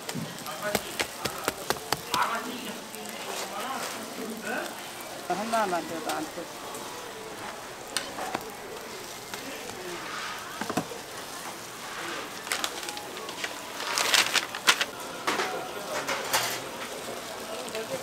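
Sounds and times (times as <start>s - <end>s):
faint voices: 0.0s - 18.0s
metal utensils clicking and clinking: 12.4s - 16.9s.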